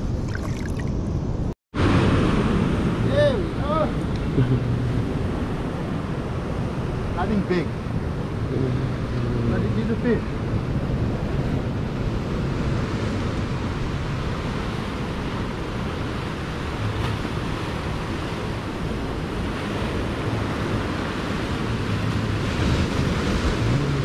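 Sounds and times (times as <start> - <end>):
ocean surf washing: 0.0 - 24.0
wind noise on microphone: 10.3 - 24.0.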